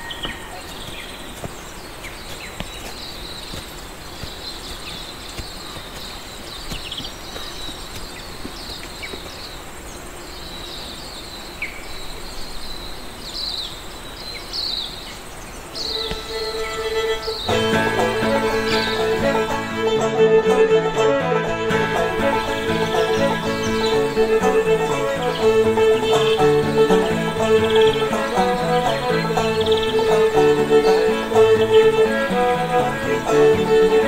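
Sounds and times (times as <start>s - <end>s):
steady background hiss: 0.0s - 34.0s
held string note: 15.8s - 34.0s.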